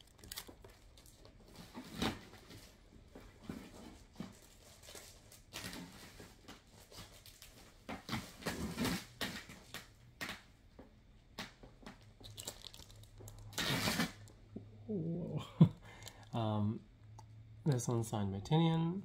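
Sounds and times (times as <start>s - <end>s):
objects being handled: 11.6s - 14.7s.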